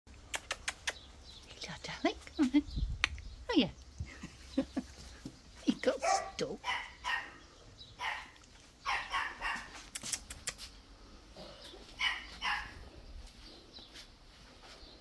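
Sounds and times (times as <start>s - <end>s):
dog barking: 6.0s - 7.4s, 8.0s - 9.8s, 12.0s - 12.8s.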